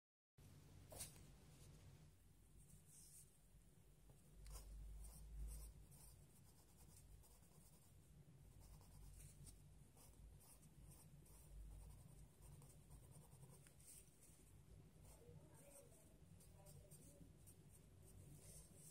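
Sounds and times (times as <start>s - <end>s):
pencil scratching on paper: 4.5s - 8.0s, 8.6s - 14.2s, 18.2s - 18.9s.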